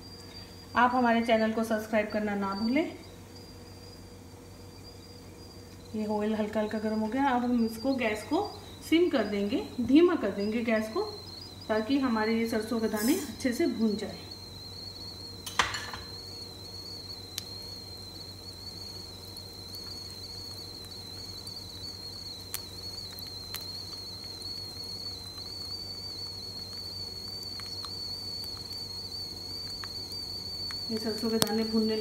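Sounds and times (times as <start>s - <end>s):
high-pitched whine: 0.0s - 32.0s
seeds sizzling in hot oil: 0.0s - 32.0s
sharp clicks: 6.7s - 32.0s.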